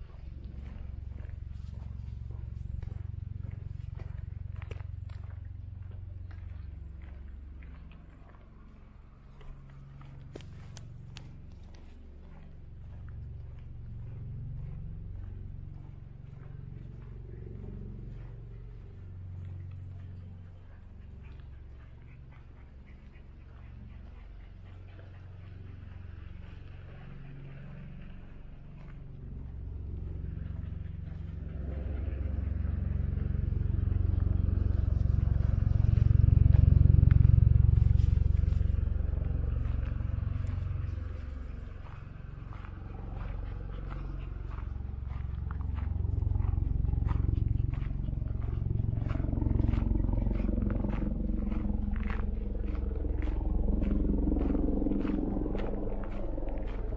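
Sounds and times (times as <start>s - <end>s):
footsteps on a trail: 0.0s - 56.9s
steady low rumble: 0.0s - 56.9s.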